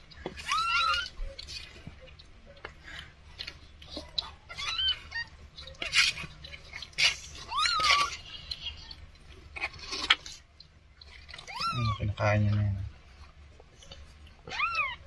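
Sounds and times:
kittens mewing: 0.3 - 2.0, 4.0 - 10.2, 11.1 - 12.2, 14.4 - 15.0.

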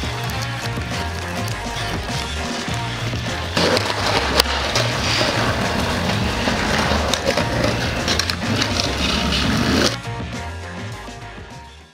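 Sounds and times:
skateboard clacks: 0.0 - 10.0
skateboard rolling on concrete: 0.0 - 11.9
skateboard grinding on concrete curb: 2.2 - 10.0.

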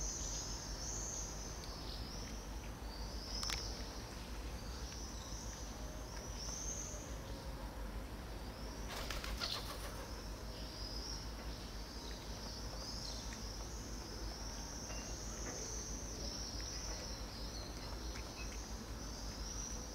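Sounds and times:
insects chirring: 0.0 - 7.6.

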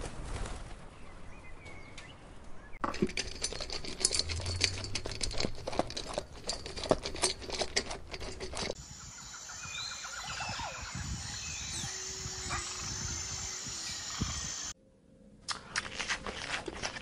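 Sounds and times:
bird chirps: 8.8 - 14.7.

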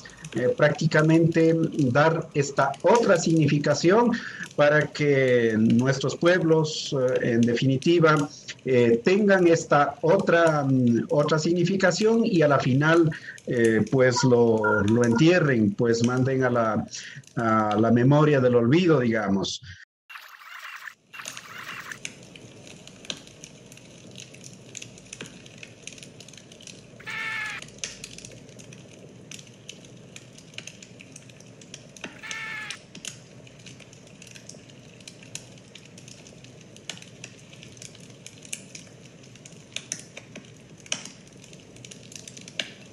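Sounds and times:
wood fire crackling: 0.0 - 19.0, 20.6 - 42.9
short pitched call: 27.0 - 27.6, 32.1 - 32.8.

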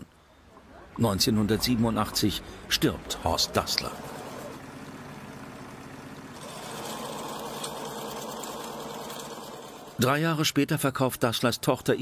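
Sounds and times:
sewing machines whirring: 3.4 - 4.7, 6.3 - 10.1.

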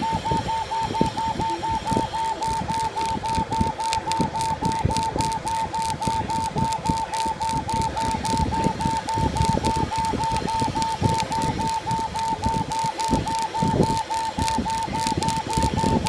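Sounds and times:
laser engraver drive whining: 0.0 - 16.0.

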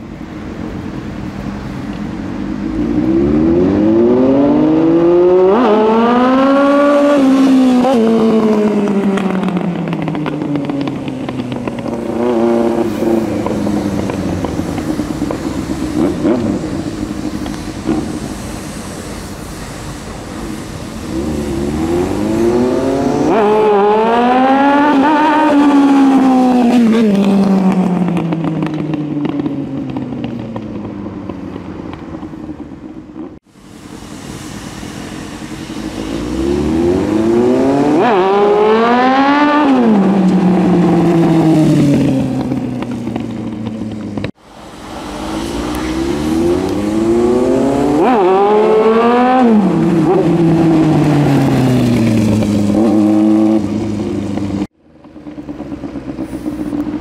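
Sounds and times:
motorcycle engine passing by: 36.2 - 54.7.

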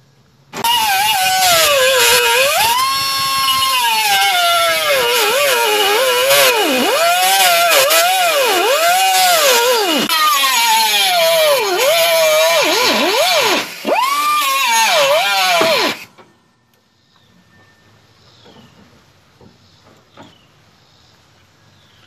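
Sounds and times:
air cutoff wheel whining through metal: 0.5 - 10.1.

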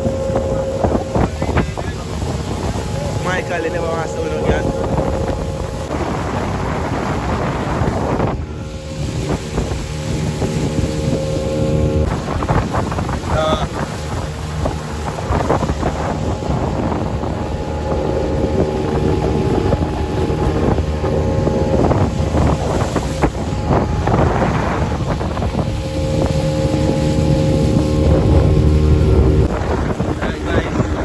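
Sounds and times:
boat motor running: 0.0 - 31.0
wind buffeting microphone: 0.0 - 31.0.

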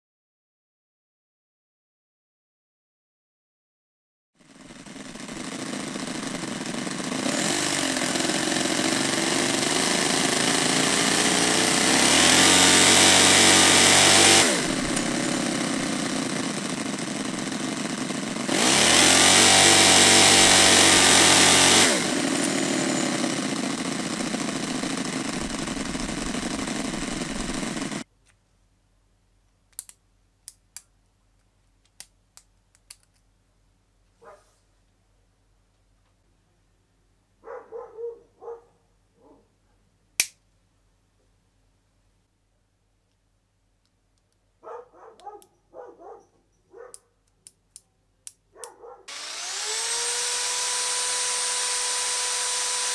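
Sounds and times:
small model engine revving: 4.4 - 28.0, 49.1 - 52.9.

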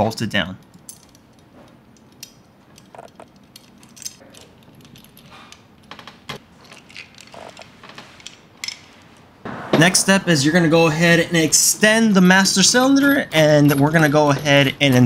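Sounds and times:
small metal clicks and clinks: 0.6 - 5.4.

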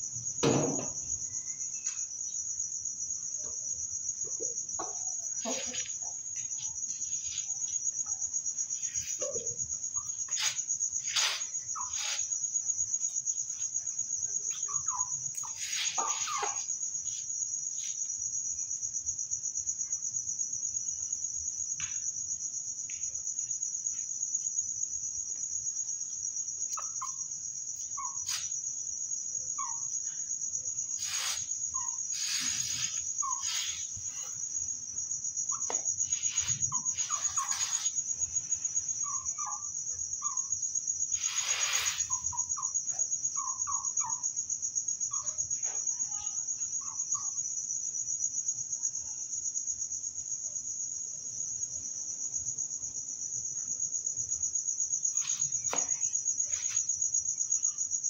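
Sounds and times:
crickets trilling: 0.0 - 58.0
chickens clucking: 4.8 - 5.9
rustles: 5.2 - 13.8, 14.5 - 18.1, 30.9 - 34.7, 35.5 - 39.6, 41.1 - 42.4, 55.0 - 57.2.

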